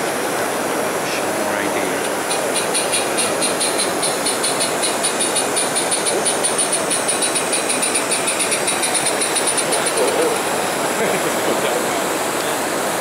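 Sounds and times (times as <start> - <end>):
model steam locomotive chuffing: 2.0 - 12.0.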